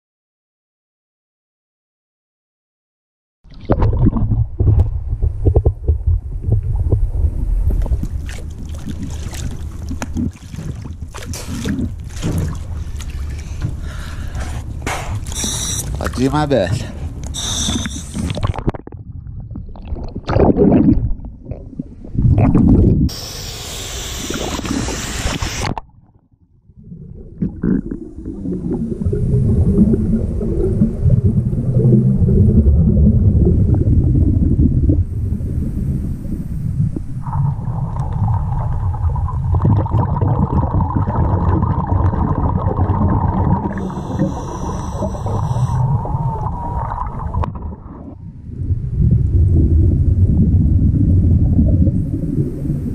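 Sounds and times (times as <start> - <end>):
underwater rumbling and gurgling: 3.5 - 23.3, 24.0 - 52.9
water splashing: 7.6 - 21.7
wavering hum: 43.5 - 47.5.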